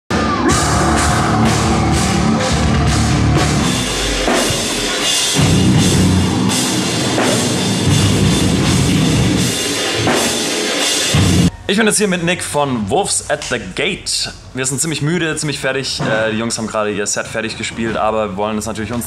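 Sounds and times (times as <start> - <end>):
heavy rock band: 0.1 - 11.5
drum kit beat: 0.1 - 11.6.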